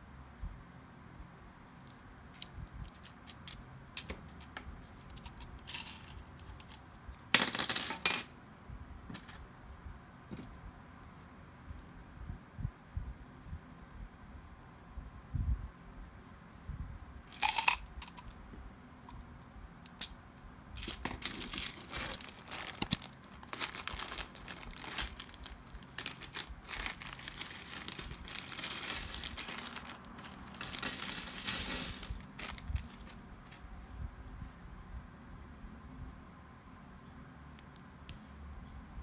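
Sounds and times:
metal needles clinking: 1.8 - 8.3, 17.3 - 18.4, 20.8 - 33.6
plastic bag crinkling: 20.8 - 33.6.

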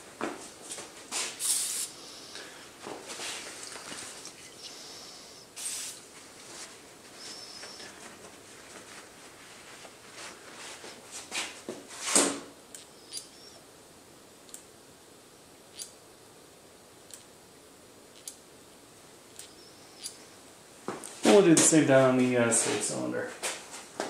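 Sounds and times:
aerosol spray hissing: 1.2 - 2.4, 4.7 - 6.1.

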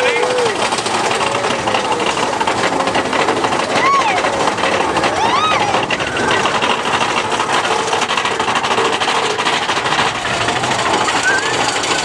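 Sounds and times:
roller coaster cars rattling: 0.0 - 12.0
rider whooping: 3.7 - 6.6, 10.7 - 12.0.

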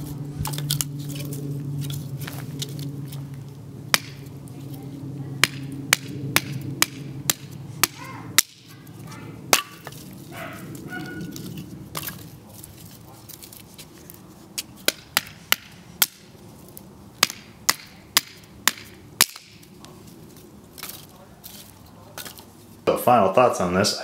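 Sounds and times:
steady low hum: 0.0 - 24.0
blade chopping branches: 3.9 - 16.3, 17.2 - 19.7.

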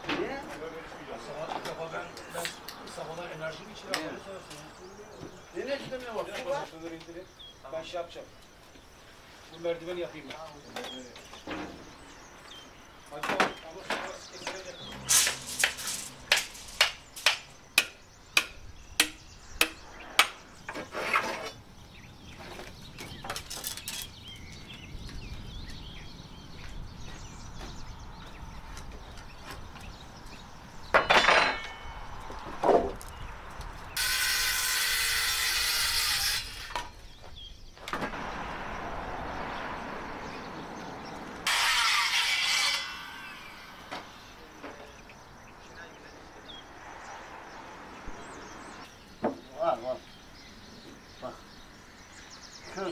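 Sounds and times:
hammer striking: 14.5 - 20.4.

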